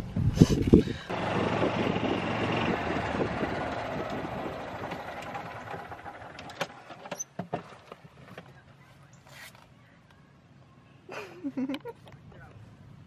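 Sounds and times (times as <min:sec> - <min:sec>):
golf cart running: 0:01.1 - 0:09.1.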